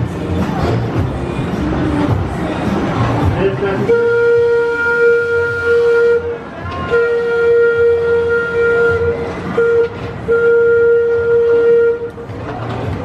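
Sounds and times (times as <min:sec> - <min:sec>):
roller coaster train rumble: 0:00.0 - 0:13.0.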